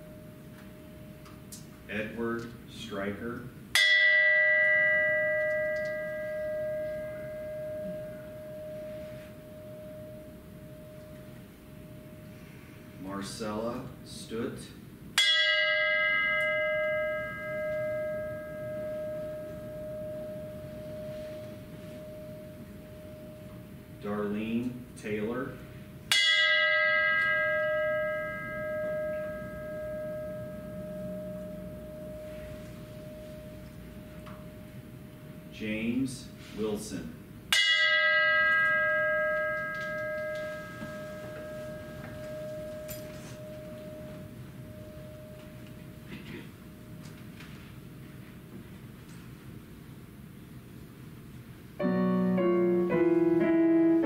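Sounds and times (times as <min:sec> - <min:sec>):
bell ringing: 0:03.8 - 0:12.6, 0:15.2 - 0:24.3, 0:26.1 - 0:36.0, 0:37.5 - 0:46.2.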